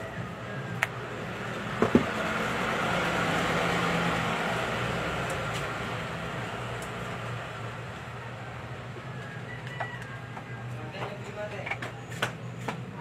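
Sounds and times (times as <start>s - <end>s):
passing vehicle engine: 0.0s - 9.6s.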